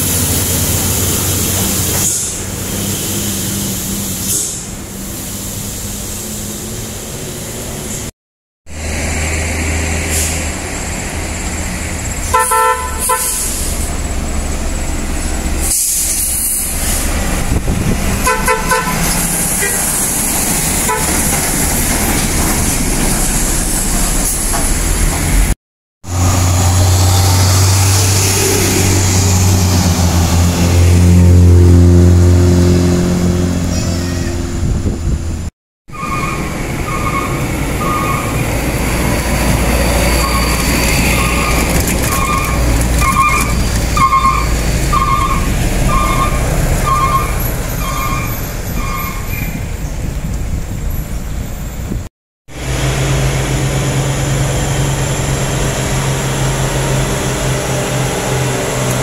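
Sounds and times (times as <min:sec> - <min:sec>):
diesel truck engine drone: 0:00.0 - 0:08.1, 0:08.7 - 0:59.0
multi-note truck horn blasts: 0:12.3 - 0:13.5, 0:18.2 - 0:19.0, 0:20.8 - 0:21.2.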